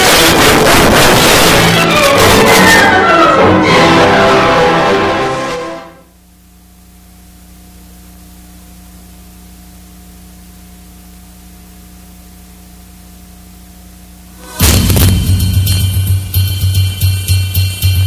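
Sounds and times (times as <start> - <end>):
orchestral string music: 0.2 - 6.0
low hum: 5.9 - 18.0.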